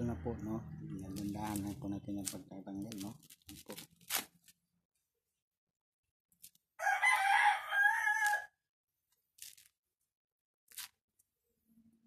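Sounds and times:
coconut husk fibre crackling: 0:00.9 - 0:04.6, 0:09.1 - 0:09.8, 0:10.7 - 0:11.1
rooster crowing: 0:06.8 - 0:08.6.

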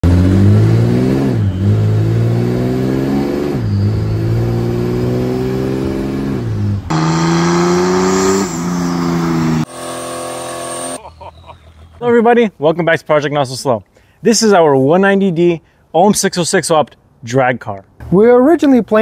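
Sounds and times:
diesel engine accelerating through shifts: 0:00.0 - 0:11.0.

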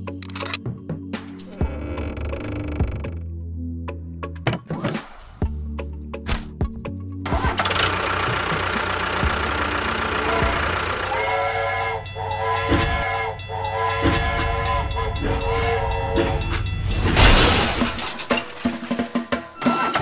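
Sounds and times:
toy steam train chugging: 0:07.3 - 0:17.1
steam whistle blasts: 0:10.2 - 0:17.0.

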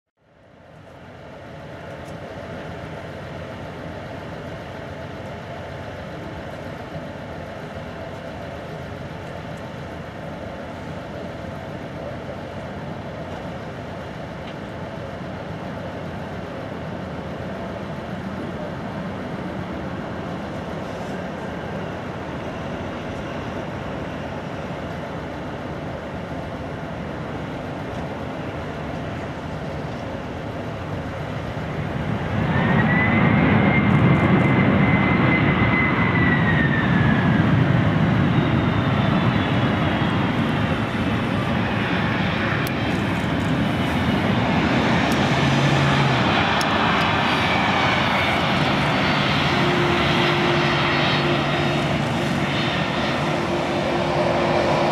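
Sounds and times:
jet engines with faint whine: 0:00.2 - 0:54.9.

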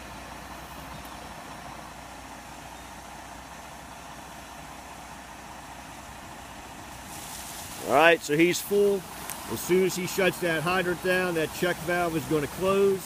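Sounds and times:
truck engine idling: 0:00.0 - 0:13.0
water rushing through hose: 0:06.8 - 0:13.0.

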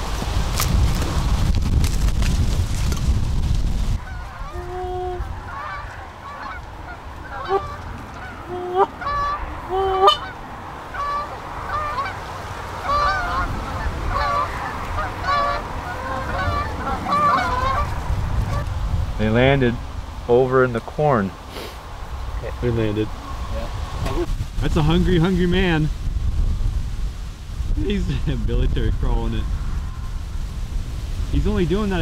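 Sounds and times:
geese honking in flight: 0:04.0 - 0:18.7.

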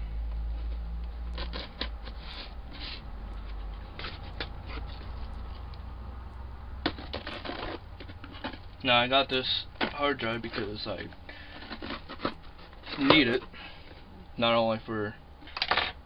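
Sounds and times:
tape and cardboard crackling: 0:00.4 - 0:06.0, 0:06.8 - 0:14.1
scissors cutting packing tape: 0:01.3 - 0:02.6.

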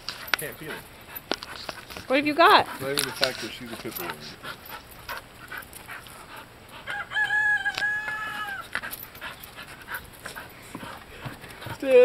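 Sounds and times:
rooster crowing: 0:06.8 - 0:08.8.

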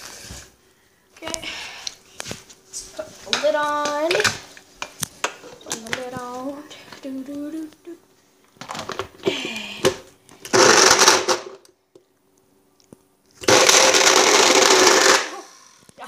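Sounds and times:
blender pulsing: 0:10.5 - 0:11.6, 0:13.4 - 0:16.0.

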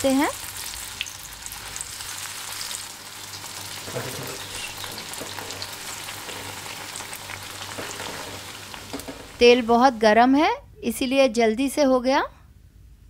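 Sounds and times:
bread sizzling in hot oil: 0:00.0 - 0:10.0
skimmer stirring in oil: 0:03.8 - 0:09.4.

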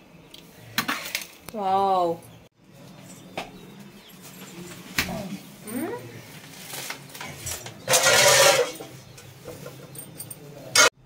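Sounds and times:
metal pot scraping: 0:06.1 - 0:11.0
metal pot clanking: 0:07.2 - 0:11.0.

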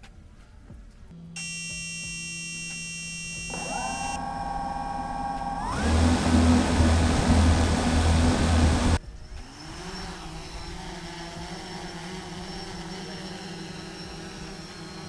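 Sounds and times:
drone motors whining: 0:01.4 - 0:15.0
loud propeller noise: 0:04.2 - 0:15.0.

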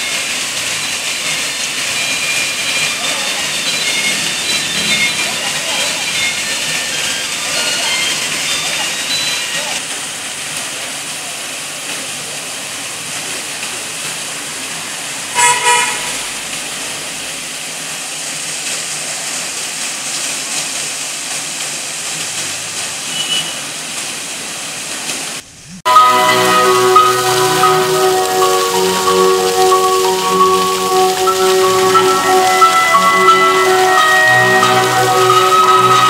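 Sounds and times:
fountain water splashing: 0:00.0 - 0:36.0
vehicle horn toot: 0:15.3 - 0:16.7, 0:23.1 - 0:23.6.

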